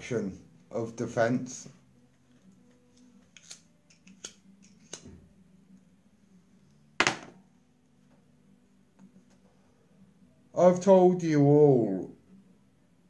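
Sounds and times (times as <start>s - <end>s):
sharp loud knock: 7.0s - 7.4s.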